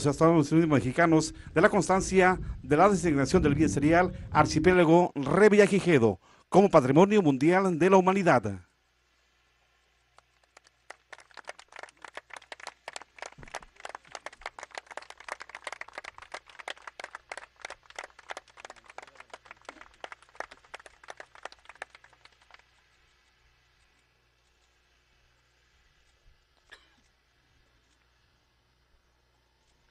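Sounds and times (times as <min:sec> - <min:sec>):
small group applauding: 0:10.1 - 0:22.9.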